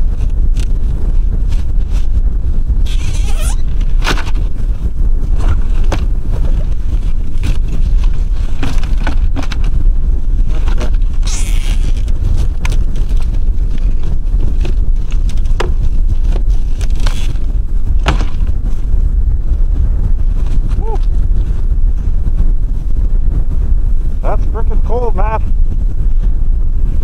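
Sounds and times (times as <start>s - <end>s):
wind buffeting microphone: 0.0s - 27.0s
wooden box scraping: 5.3s - 9.8s, 10.4s - 12.4s.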